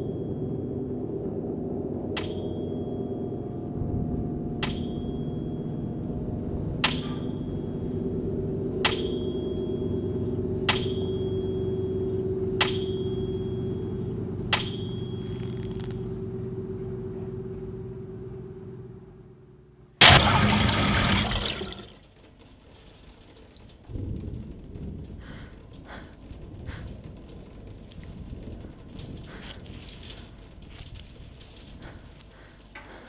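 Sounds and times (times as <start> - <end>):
low steady drone: 0.0 - 20.9
water dripping from faucet: 20.0 - 21.9.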